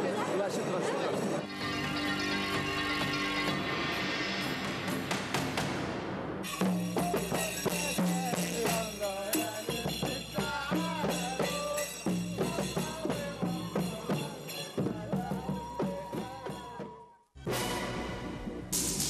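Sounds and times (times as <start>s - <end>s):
frame drums and hand drums: 1.5s - 17.7s
voices singing: 6.9s - 17.2s.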